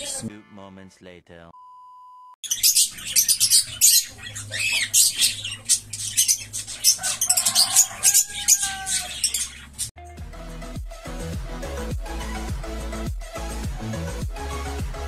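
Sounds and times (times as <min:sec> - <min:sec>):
birds chattering and squawking: 0:02.4 - 0:09.9.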